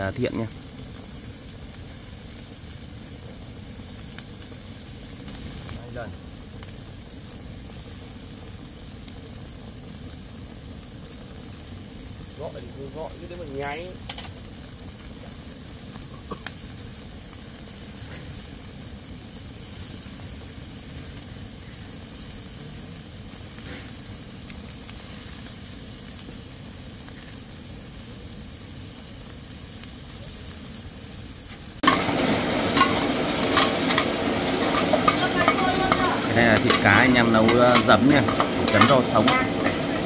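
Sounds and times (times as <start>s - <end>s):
loud stir-frying: 0.0s - 40.0s
meat sizzling in a pan: 0.0s - 40.0s
utensil scraping a pan: 31.8s - 40.0s.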